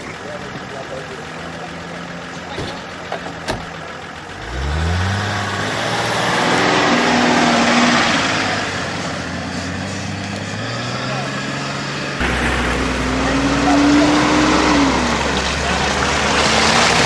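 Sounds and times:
off-road vehicle engine revving: 0.0s - 17.0s
rushing noise of vehicle passing: 4.6s - 17.0s.

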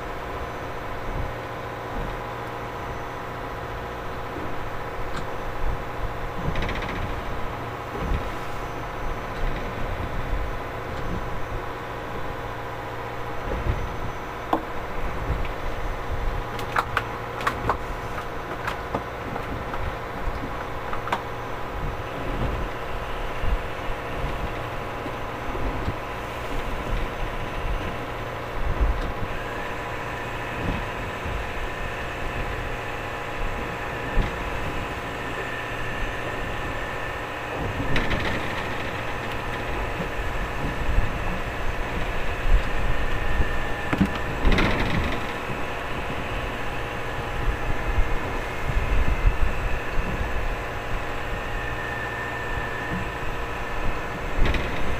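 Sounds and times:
boat engine humming: 0.0s - 54.9s
gear clattering on deck: 6.3s - 8.4s, 37.5s - 50.4s, 53.9s - 54.9s.

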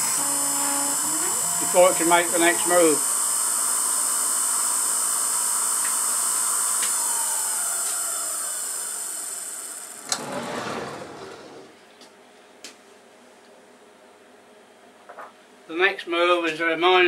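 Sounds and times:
milling machine spindle whine: 0.0s - 10.2s.

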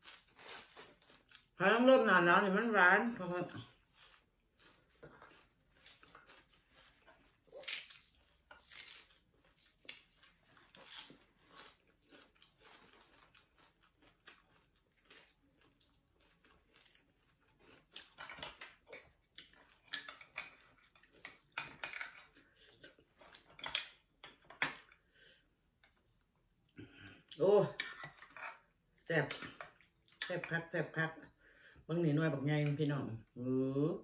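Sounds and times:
chewing and mouth noises: 3.7s - 8.5s, 9.3s - 23.9s.

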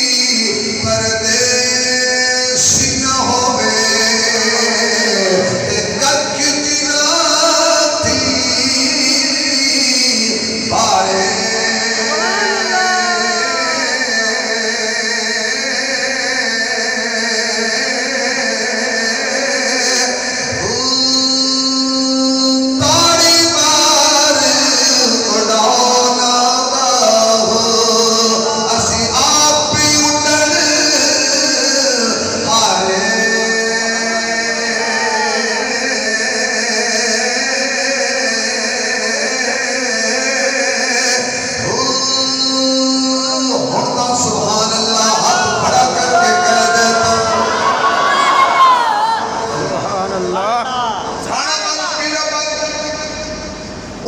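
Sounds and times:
man chanting into a microphone: 0.0s - 54.0s.

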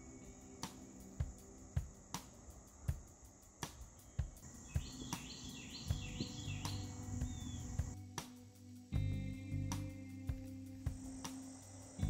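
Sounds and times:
insects trilling: 0.0s - 12.0s
soft background music with beat: 0.0s - 12.0s
bird chirps: 3.6s - 8.0s.

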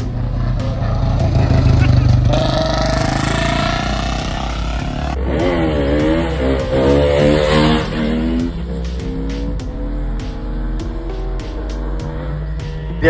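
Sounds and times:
motorcycle engine pitch rising and falling: 0.0s - 13.0s
motorcycle engine revving: 0.0s - 13.0s.

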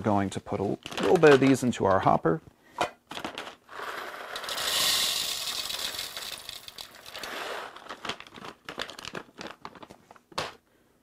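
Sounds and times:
coffee beans pouring into grinder: 3.7s - 7.9s.

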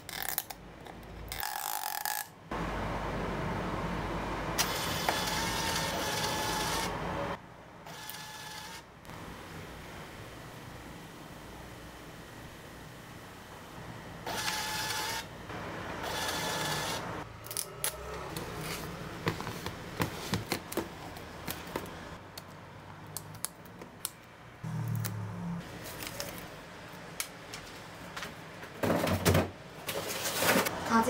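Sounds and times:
label printer buzzing: 4.6s - 7.0s, 14.3s - 15.3s, 16.0s - 17.1s.

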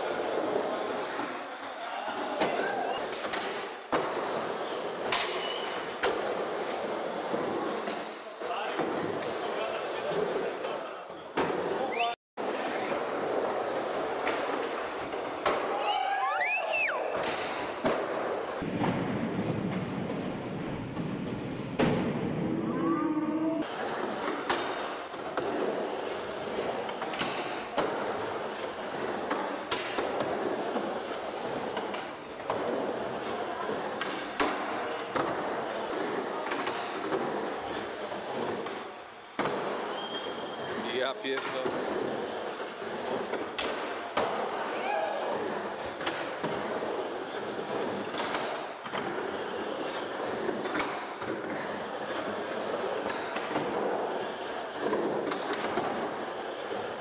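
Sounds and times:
skateboard wheels rolling on concrete: 0.0s - 22.6s, 23.6s - 57.0s
skateboard clacks: 23.6s - 40.2s, 41.4s - 57.0s.

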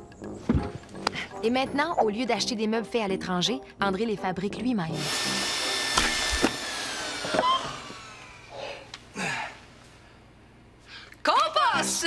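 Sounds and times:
table saw winding down: 5.0s - 8.5s.

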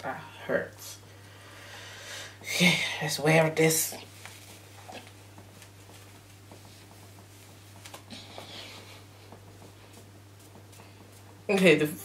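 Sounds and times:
low electrical hum: 0.0s - 12.0s
wig fibres rustling: 2.4s - 12.0s
hair swishing: 3.6s - 12.0s.

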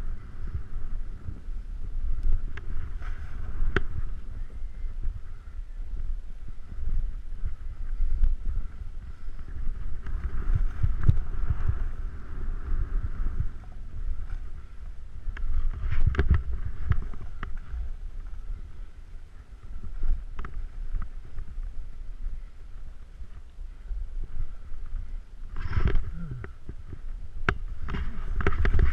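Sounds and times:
wind on microphone: 0.0s - 28.9s
snowboard scraping over snow: 2.4s - 4.4s, 8.6s - 13.5s.

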